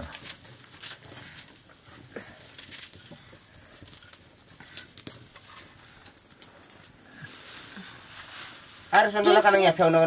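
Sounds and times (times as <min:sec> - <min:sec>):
leaves rustling on plastic sack: 0:07.3 - 0:10.0.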